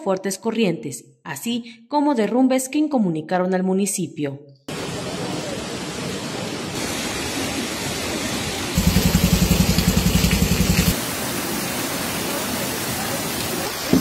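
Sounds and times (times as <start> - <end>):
floodwater rushing: 4.7 - 14.0
low fast throbbing: 8.8 - 10.9.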